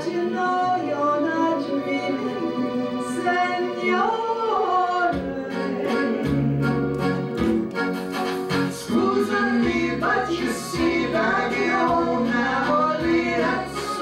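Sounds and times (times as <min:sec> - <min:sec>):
woman singing with vibrato: 0:00.0 - 0:06.8, 0:08.8 - 0:14.0
steady beat: 0:05.1 - 0:13.8
bass line: 0:05.2 - 0:14.0.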